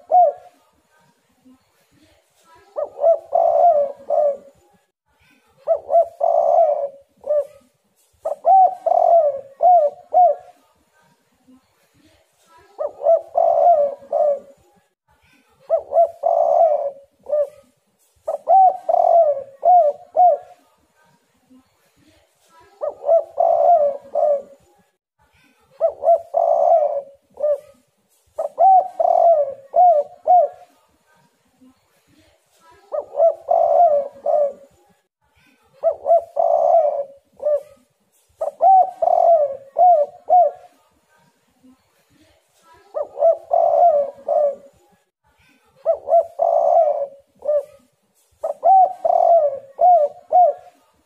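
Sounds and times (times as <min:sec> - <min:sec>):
dove cooing: 0:00.0 - 0:00.6, 0:02.7 - 0:04.6, 0:05.6 - 0:10.6, 0:12.8 - 0:14.7, 0:15.7 - 0:20.6, 0:22.8 - 0:24.7, 0:25.8 - 0:30.8, 0:32.9 - 0:34.8, 0:35.8 - 0:40.8, 0:42.9 - 0:44.9, 0:45.8 - 0:50.8.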